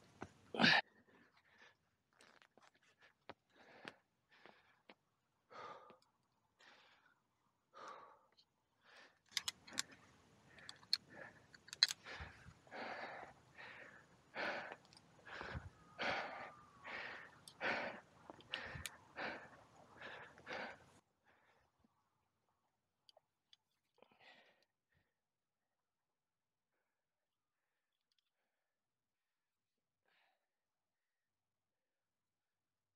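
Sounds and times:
person breathing heavily: 0:02.8 - 0:21.7, 0:24.0 - 0:24.7
climbing gear metallic clicks: 0:09.3 - 0:12.5.

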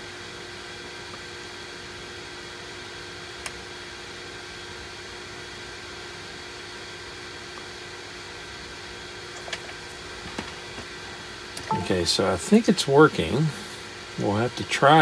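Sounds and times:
background hum and hiss: 0:00.0 - 0:15.0.

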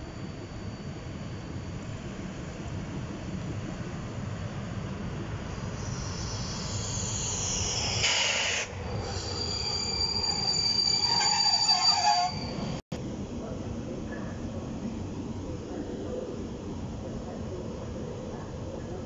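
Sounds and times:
train brakes and wheels squealing: 0:05.7 - 0:12.8
lower screeches: 0:05.8 - 0:12.8.

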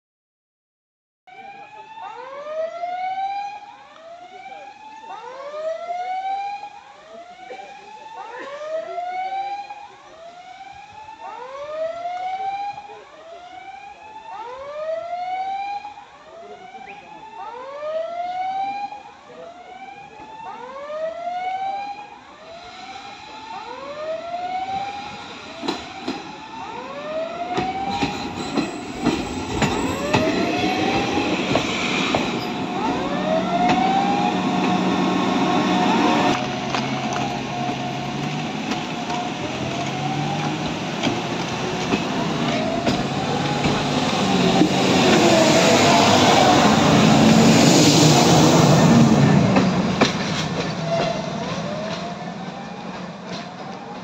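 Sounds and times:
level crossing warning signal: 0:03.8 - 0:54.0
passenger train approaching: 0:21.4 - 0:54.0.

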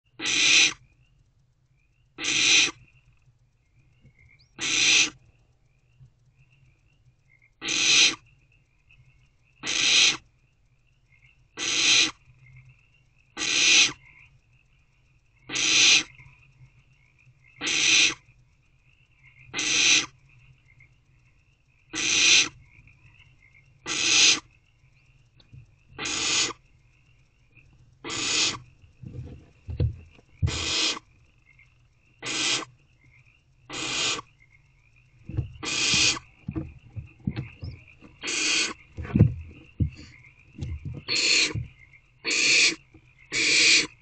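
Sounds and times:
barn owlets hiss-screeching: 0:00.2 - 0:00.8, 0:02.2 - 0:02.8, 0:04.6 - 0:05.2, 0:07.6 - 0:08.2, 0:09.6 - 0:10.2, 0:11.6 - 0:12.2, 0:13.4 - 0:14.0, 0:15.5 - 0:16.1, 0:17.6 - 0:18.2, 0:19.5 - 0:20.1, 0:22.0 - 0:22.6, 0:23.9 - 0:24.5, 0:26.0 - 0:26.6, 0:28.0 - 0:28.6, 0:30.4 - 0:31.0, 0:32.2 - 0:32.7, 0:33.7 - 0:34.3, 0:35.6 - 0:36.3, 0:37.6 - 0:38.8, 0:41.1 - 0:41.6, 0:42.2 - 0:44.0.

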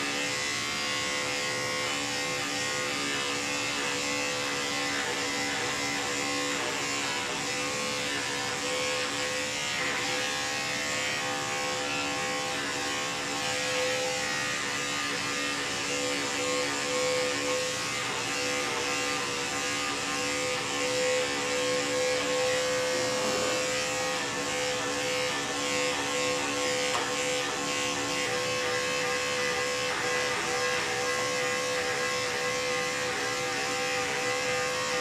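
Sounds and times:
electric clipper buzzing: 0:00.0 - 0:35.0.

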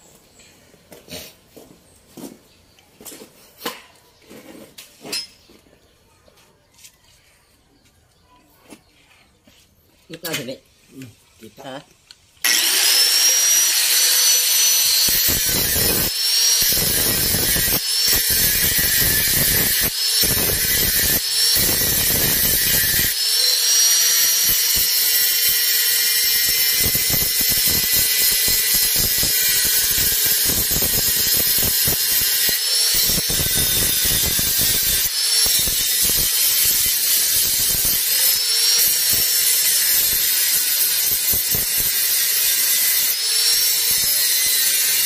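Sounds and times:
angle grinder grinding metal: 0:11.5 - 0:45.0.

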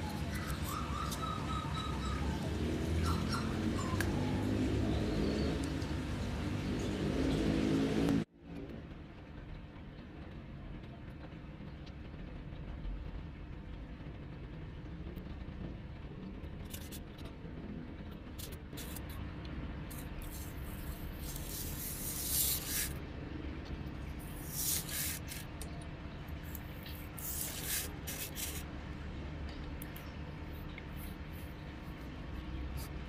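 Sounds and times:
steady low hum: 0:00.0 - 0:33.0
knife cutting foam sheet: 0:19.9 - 0:23.0, 0:26.5 - 0:28.6.

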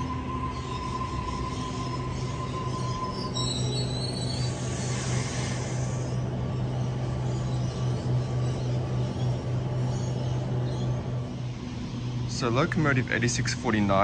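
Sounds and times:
train electrical hum: 0:00.0 - 0:14.0
high hiss: 0:04.4 - 0:06.2.

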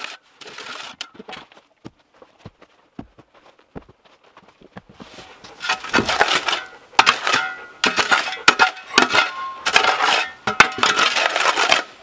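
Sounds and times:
metal shovel scraping soil: 0:00.0 - 0:01.5, 0:05.0 - 0:12.0.

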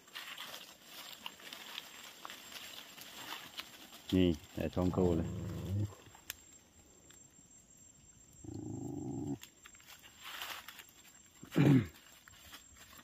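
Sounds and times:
drawn-out animal cry: 0:05.0 - 0:06.0.

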